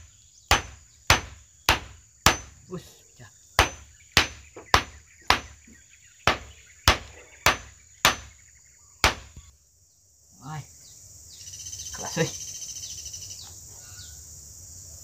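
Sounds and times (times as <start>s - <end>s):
hammer driving nails into wood: 0.0s - 2.6s, 3.6s - 5.6s, 6.3s - 8.4s, 9.0s - 9.4s.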